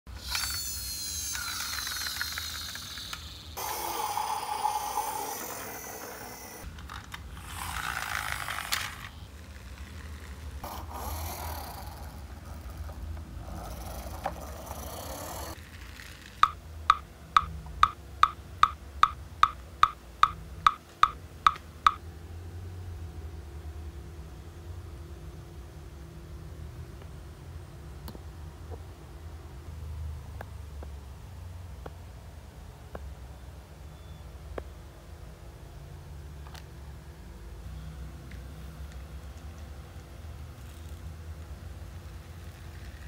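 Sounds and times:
toy truck wheels whirring on tile: 0.1s - 16.6s
faint steady hum: 0.1s - 43.0s
sharp ticks: 16.4s - 22.0s.

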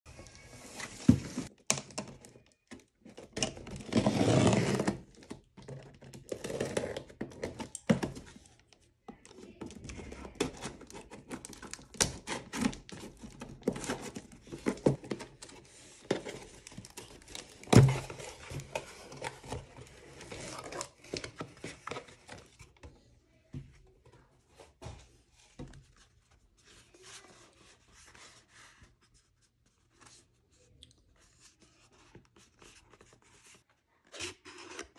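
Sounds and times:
cardboard tearing and rustling: 3.4s - 8.2s.

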